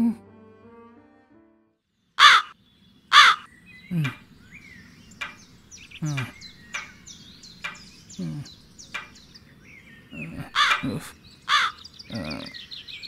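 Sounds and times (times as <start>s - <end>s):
small birds chirping: 1.9s - 13.0s
crow cawing: 2.2s - 3.5s, 10.5s - 10.8s, 11.5s - 11.8s.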